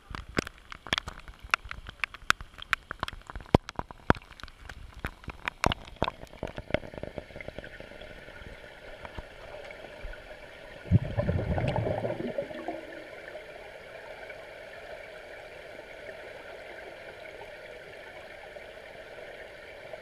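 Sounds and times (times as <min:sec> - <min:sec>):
muffled underwater patter: 0:00.0 - 0:13.1
gurgling rush of water: 0:00.0 - 0:20.0
rain drops on water: 0:00.0 - 0:20.0.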